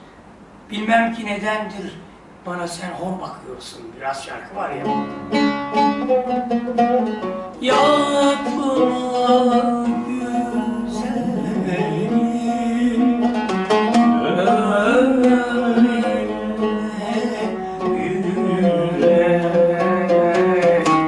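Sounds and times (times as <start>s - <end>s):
plucked oud notes: 4.8s - 21.0s
man singing: 7.6s - 21.0s.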